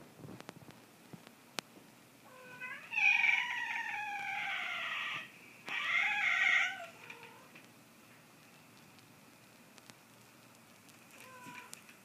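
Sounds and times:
cat yowling: 2.3s - 7.6s, 11.2s - 11.8s.

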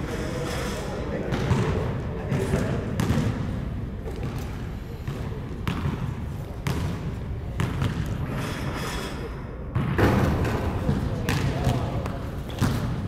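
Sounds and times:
basketball bouncing on hard floor: 2.3s - 3.3s, 5.1s - 6.0s, 7.6s - 8.0s, 10.9s - 11.9s, 12.5s - 13.0s.

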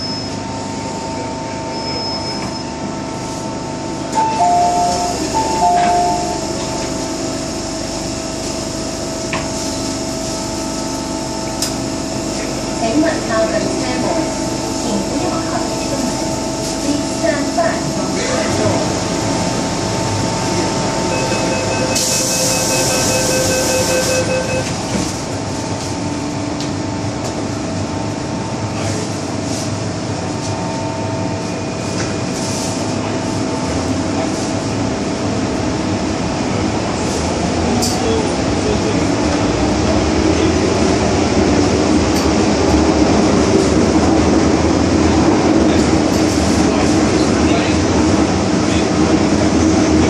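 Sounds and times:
train running noise: 2.4s - 50.0s
train motor whine: 4.1s - 7.7s, 20.1s - 25.2s
door-closing warning beeps: 4.2s - 6.4s, 21.1s - 24.9s
train door hiss: 21.8s - 24.0s.

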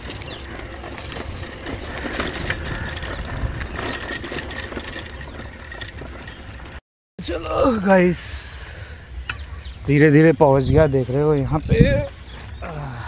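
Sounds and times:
bicycle rattling and clicking: 0.0s - 6.8s.

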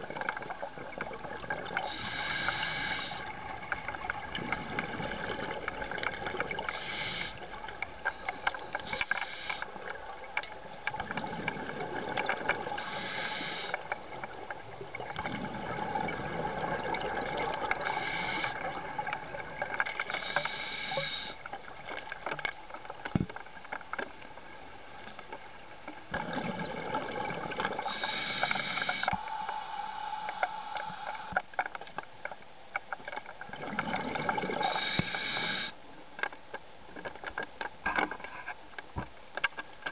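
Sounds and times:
hissing inhale through regulator: 1.8s - 3.4s, 6.5s - 9.8s, 12.8s - 14.0s, 17.4s - 18.8s, 20.0s - 21.5s, 27.8s - 31.4s, 34.6s - 35.8s
exhaled bubbles rushing: 15.1s - 17.8s, 26.1s - 27.9s, 33.5s - 34.6s.

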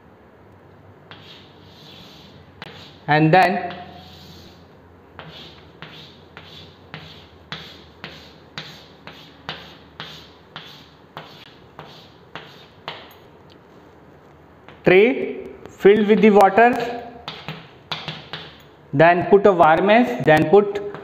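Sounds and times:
chalk tapping and scraping on chalkboard: 1.1s - 13.2s, 16.0s - 18.6s.

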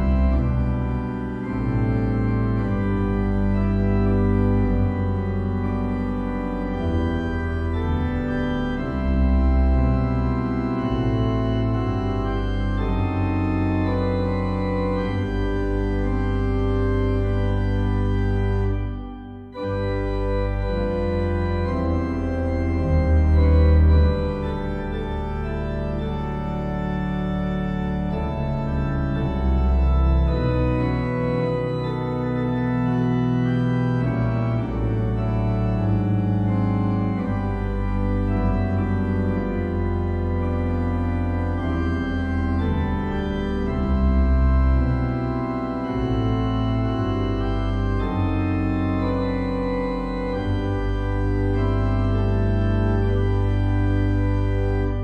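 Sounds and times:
organ playing hymn chords: 0.0s - 55.0s.

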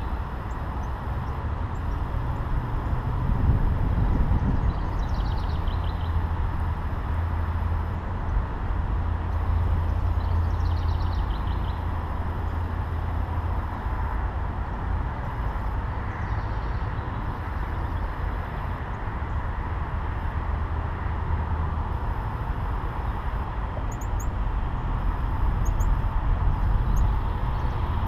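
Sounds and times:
steady low rumble: 0.0s - 28.0s
songbird trilling: 23.9s - 24.3s, 25.6s - 26.0s, 26.6s - 28.0s.

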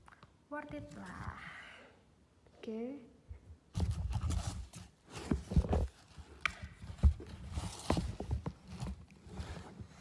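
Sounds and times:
shoes knocking and rustling: 3.7s - 10.0s.

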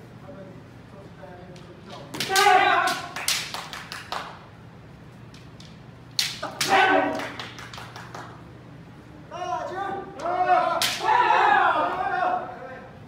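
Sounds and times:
bamboo swords clacking: 2.1s - 3.5s, 5.3s - 7.2s, 10.8s - 11.1s
person shouting loudly: 2.2s - 3.1s.

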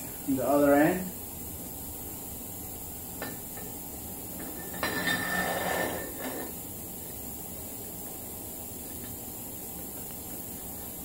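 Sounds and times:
metal scrape with faint ring: 4.6s - 6.6s.

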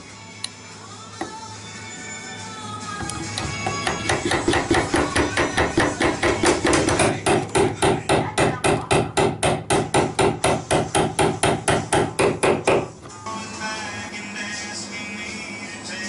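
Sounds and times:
hammer striking chisel on wood: 3.4s - 12.9s.

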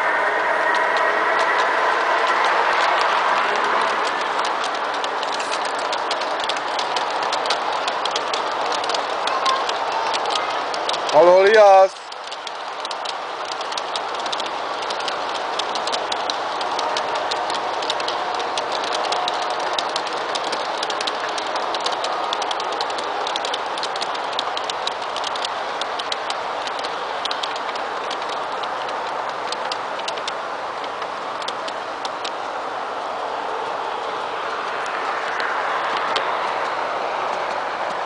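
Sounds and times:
model train rolling on track: 0.0s - 38.0s
clicks of cars over track: 0.6s - 38.0s.

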